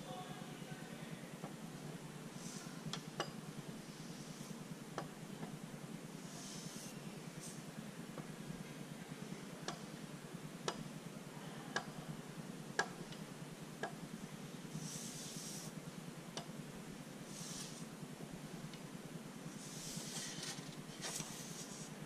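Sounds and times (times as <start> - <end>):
steady low hum: 0.0 - 22.0
paper sliding across table: 19.7 - 21.9.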